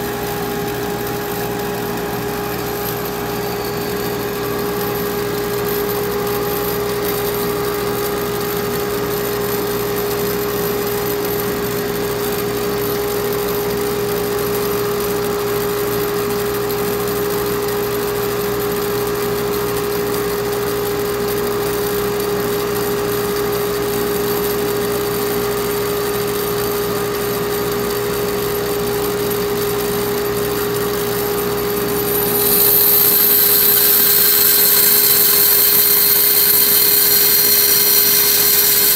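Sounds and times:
bandsaw humming: 0:31.0 - 0:38.9.

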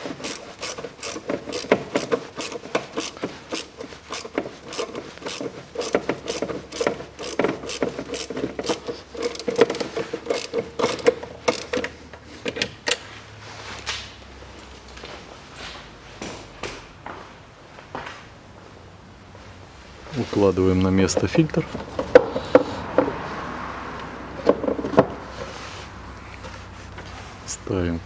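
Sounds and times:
hand ratchet clicking: 0:00.0 - 0:12.0.

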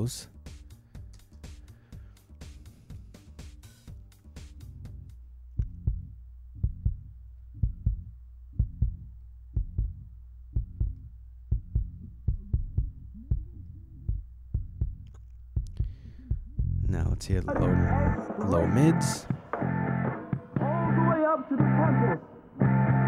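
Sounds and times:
sustained low bass: 0:00.0 - 0:23.0
kick drum thuds: 0:02.5 - 0:10.0, 0:10.6 - 0:15.0.

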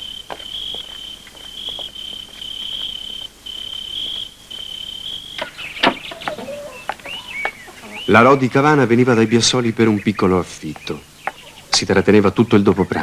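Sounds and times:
crickets trilling: 0:00.0 - 0:13.0
short bird calls: 0:03.6 - 0:11.9.

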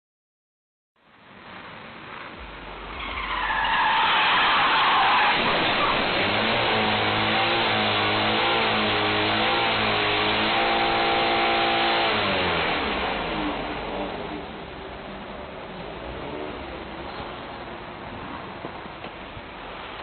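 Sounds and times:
car engine revving: 0:02.4 - 0:14.7.

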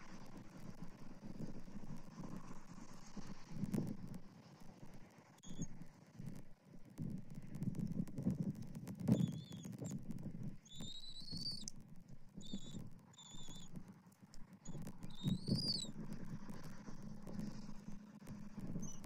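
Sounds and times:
eagle high thin whistles: 0:05.4 - 0:05.7, 0:09.1 - 0:10.0, 0:10.6 - 0:11.7, 0:12.4 - 0:13.8, 0:14.6 - 0:16.0, 0:18.7 - 0:19.0.

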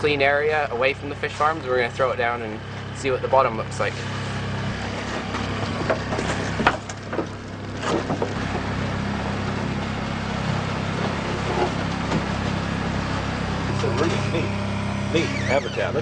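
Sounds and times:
boat engine humming: 0:00.0 - 0:16.0
knocks and clatters: 0:04.9 - 0:08.7.

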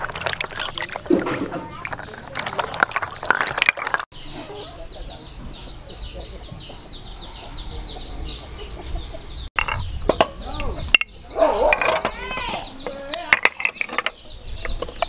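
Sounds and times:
shells sloshing in water: 0:00.0 - 0:04.1
chicks peeping: 0:04.2 - 0:13.2
chickens clucking: 0:04.2 - 0:15.0.

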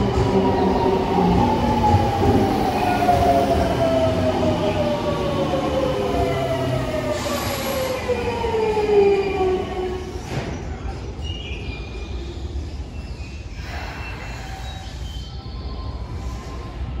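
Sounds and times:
high brake squeals: 0:10.5 - 0:16.4.

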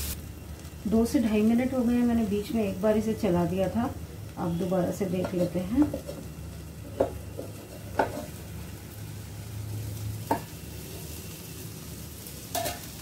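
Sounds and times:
peas sizzling in a frying pan: 0:00.0 - 0:13.0.

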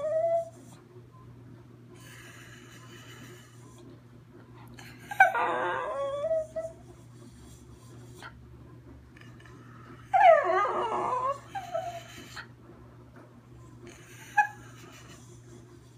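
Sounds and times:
dog howling: 0:00.0 - 0:00.6, 0:05.1 - 0:06.8, 0:10.0 - 0:12.1.

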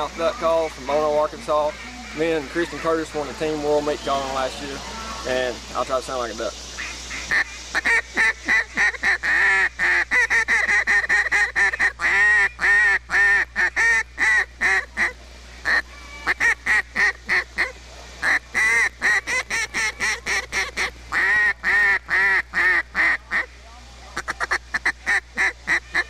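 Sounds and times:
duck call quacks and chattering: 0:06.8 - 0:23.5, 0:24.2 - 0:26.0.

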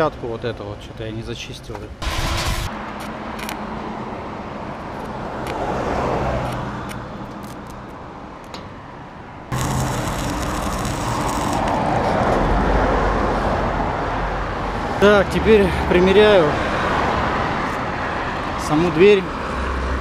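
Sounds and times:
welding arc crackle: 0:02.0 - 0:02.7, 0:09.5 - 0:12.4
angle grinder grinding metal: 0:09.5 - 0:12.4.

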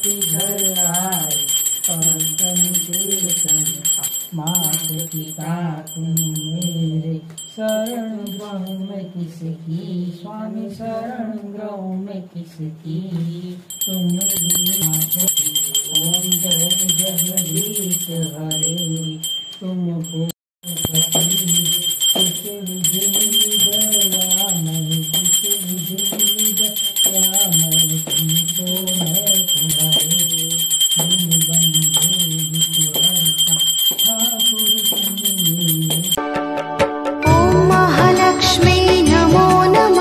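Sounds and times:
hand bell ringing rapidly: 0:00.0 - 0:08.9, 0:13.7 - 0:36.2
devotional singing: 0:00.0 - 0:36.1, 0:37.2 - 0:40.0.

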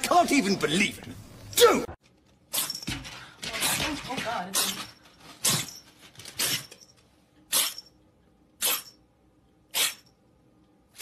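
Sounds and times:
kitten sneezing: 0:07.5 - 0:07.8, 0:08.6 - 0:08.9, 0:09.7 - 0:10.1.

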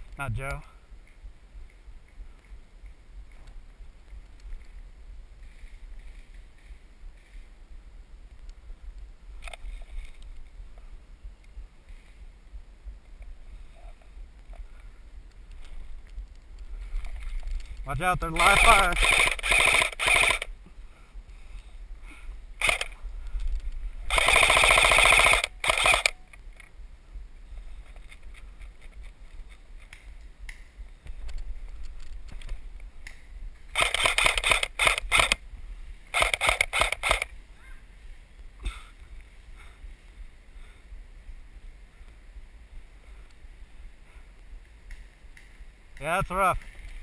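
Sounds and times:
airsoft rifle full-auto bursts: 0:18.3 - 0:20.5, 0:22.6 - 0:23.0, 0:24.1 - 0:26.3, 0:33.7 - 0:35.4, 0:36.1 - 0:37.3.

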